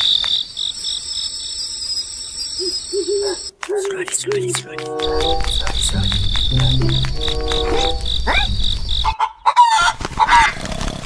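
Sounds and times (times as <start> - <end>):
crickets chirping: 0.0 - 4.1, 4.8 - 9.2.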